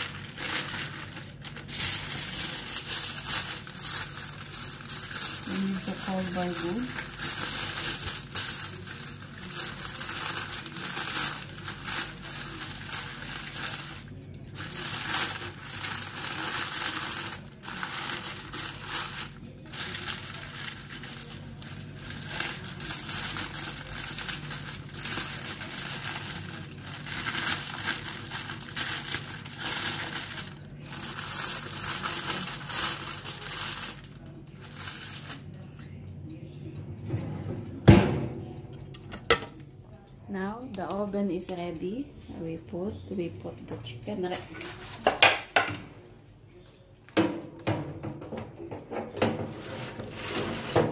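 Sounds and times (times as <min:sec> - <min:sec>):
aluminium foil crinkling: 0:00.0 - 0:35.9, 0:44.4 - 0:45.2, 0:49.5 - 0:50.9.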